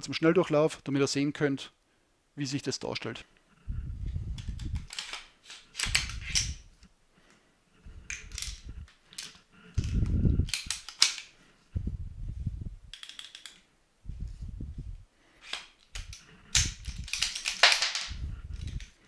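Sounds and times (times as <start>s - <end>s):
rifle action metallic clacks: 4.4s - 6.6s, 8.1s - 11.3s, 15.5s - 19.0s.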